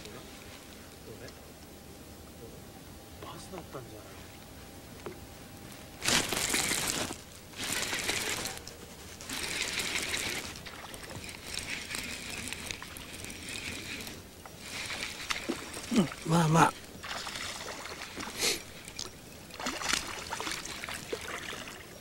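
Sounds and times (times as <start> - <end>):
fishing reel gears whirring: 6.1 - 22.0.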